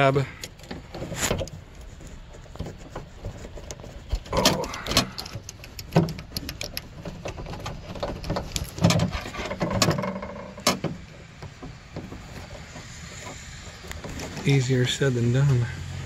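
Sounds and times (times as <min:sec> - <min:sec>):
rubbing against carpet lining: 0:01.1 - 0:04.4
plastic clicks and knocks: 0:02.5 - 0:12.6.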